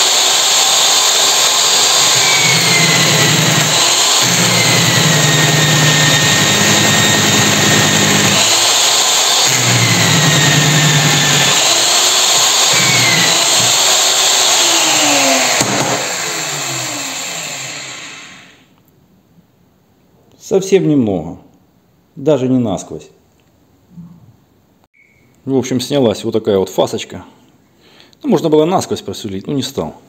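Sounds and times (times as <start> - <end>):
drill press motor hum: 0.0 - 18.6
motor spinning down: 0.0 - 18.6
hole saw cutter whine: 0.0 - 18.7.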